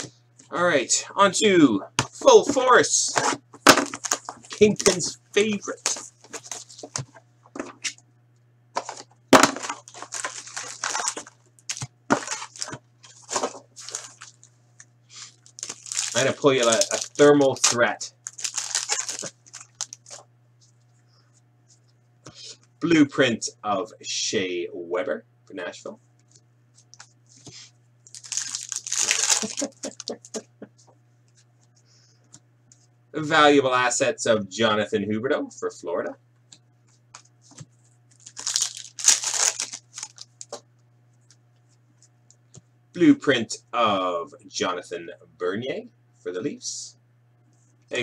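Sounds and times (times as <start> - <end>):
packaging being torn open: 3.8 - 5.0, 9.4 - 14.4, 15.4 - 20.2, 28.1 - 30.2, 38.2 - 40.5
wrapper crackling and crinkling: 3.8 - 5.1, 5.7 - 6.9, 8.8 - 14.5, 15.2 - 20.2, 28.0 - 30.3, 38.1 - 40.6.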